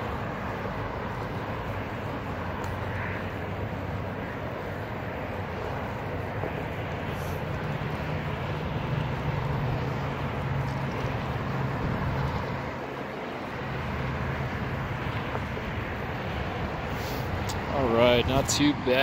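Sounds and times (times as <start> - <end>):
tyre noise on pavement: 0.0 - 19.0
wind on microphone: 0.8 - 12.8.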